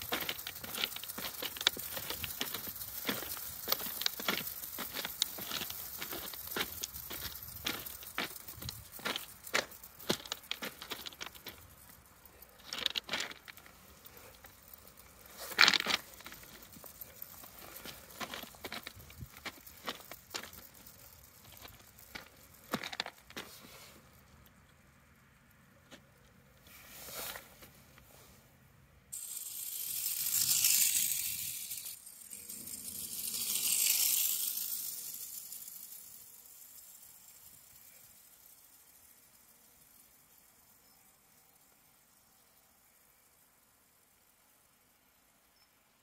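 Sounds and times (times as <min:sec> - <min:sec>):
footsteps crunching on gravel: 0:00.0 - 0:11.7, 0:12.7 - 0:13.6, 0:15.4 - 0:23.6
clockwork motor whirring: 0:00.0 - 0:12.0, 0:29.2 - 0:39.6.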